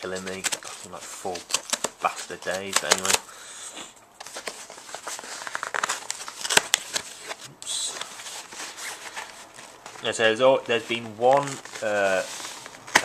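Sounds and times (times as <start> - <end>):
cardboard snapping: 0.0 - 3.2, 4.2 - 7.4
cardboard crackling and scraping: 0.0 - 3.3, 4.2 - 13.0.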